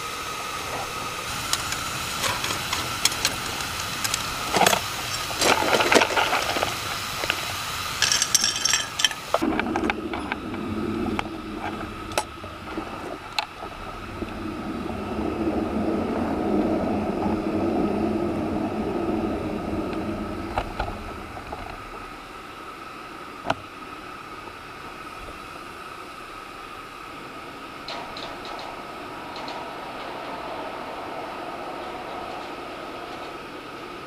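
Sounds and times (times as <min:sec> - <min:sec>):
steam rushing: 0:00.0 - 0:34.0
clicks and knocks of fittings: 0:08.0 - 0:10.4.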